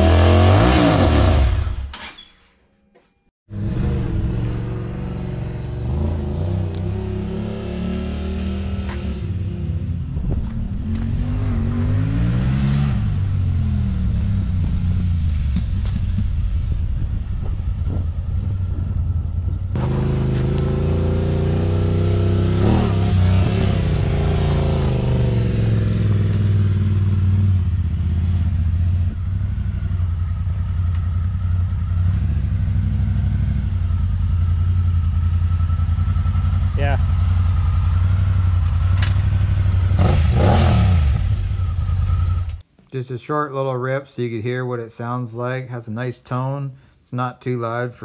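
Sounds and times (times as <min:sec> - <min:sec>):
off-road vehicle engine revving: 0:00.0 - 0:01.9, 0:03.5 - 0:16.0, 0:18.7 - 0:42.6.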